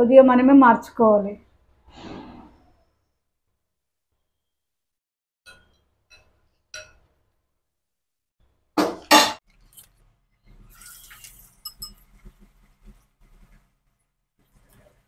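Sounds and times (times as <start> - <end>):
batter sizzling in hot oil: 10.4 - 15.0.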